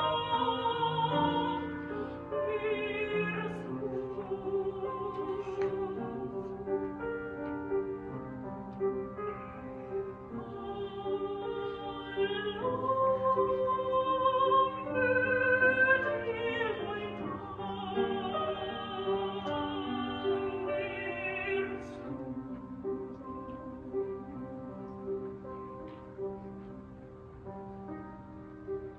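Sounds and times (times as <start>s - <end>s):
soprano singing with vibrato: 0.0s - 7.7s, 10.3s - 24.4s
grand piano: 0.0s - 28.9s.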